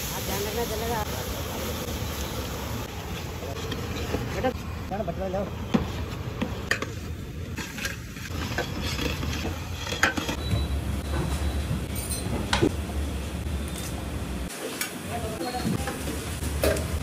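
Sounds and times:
metal ladle scraping a pot: 7.5s - 10.6s.

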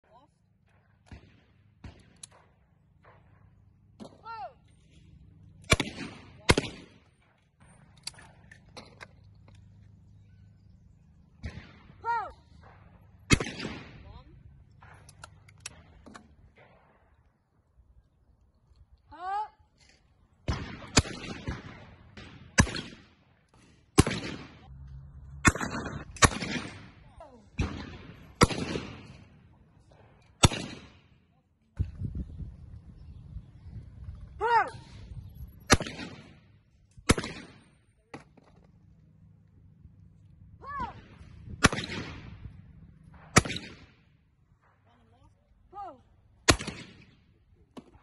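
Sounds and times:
shotgun shots echoing: 5.1s - 8.9s, 11.3s - 17.2s, 20.4s - 23.2s, 23.8s - 24.6s, 25.4s - 31.2s, 35.7s - 38.4s, 40.8s - 44.8s, 46.4s - 47.9s
person shouting: 12.0s - 12.4s, 19.1s - 19.6s, 34.4s - 34.8s, 40.6s - 41.0s.

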